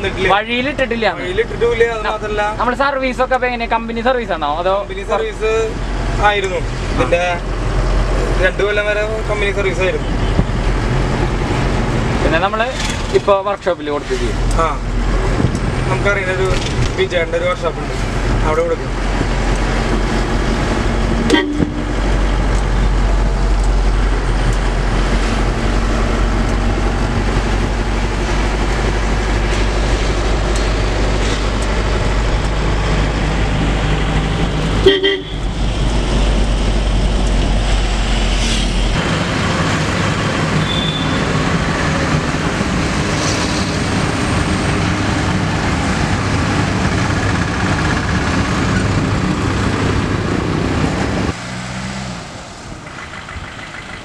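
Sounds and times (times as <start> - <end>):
street traffic noise: 0.0 - 54.0
vehicle engine and road noise: 0.0 - 54.0
horn toots: 21.3 - 22.2, 34.8 - 35.5.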